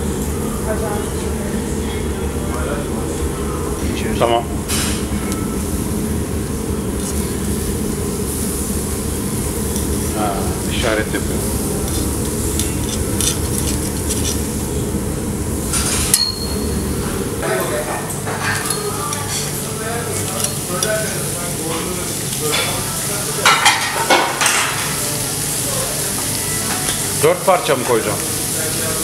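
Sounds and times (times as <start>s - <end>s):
steaks sizzling on a grill: 7.0s - 14.8s, 19.2s - 29.0s
metal tongs clicking on grate: 11.8s - 14.5s.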